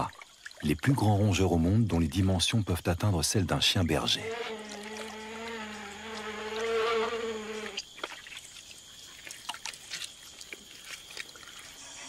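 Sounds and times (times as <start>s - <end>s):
small splashes in water: 0.0s - 1.0s, 4.6s - 6.8s, 7.5s - 12.0s
wet squelching steps: 7.7s - 12.0s.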